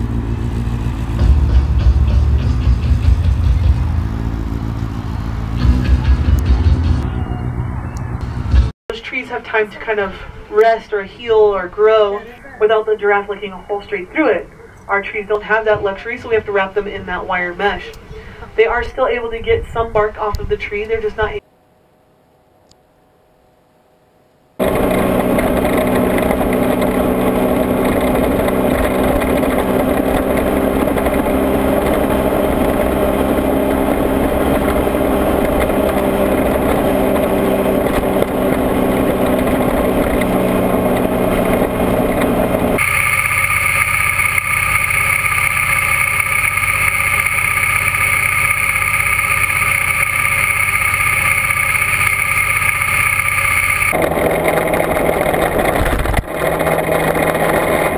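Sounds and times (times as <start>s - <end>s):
motorcycle engine cruising: 0.0s - 8.7s, 24.6s - 57.9s
wind noise: 14.5s - 21.4s, 53.9s - 57.9s.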